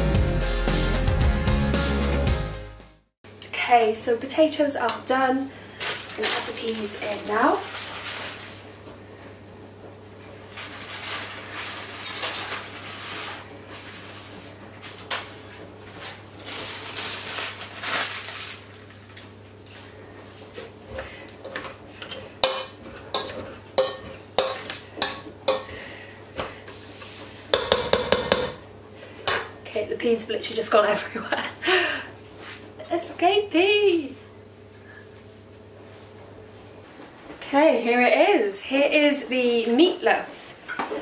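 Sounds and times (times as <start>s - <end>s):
utensil clanking against pan: 21.5s - 25.8s, 27.6s - 28.6s.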